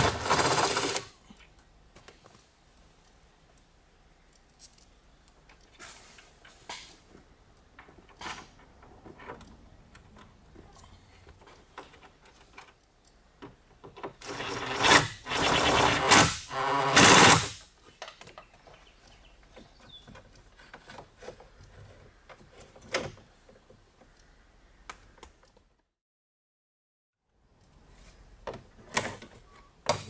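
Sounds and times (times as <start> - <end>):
drill-driver bursts: 14.2 - 17.6.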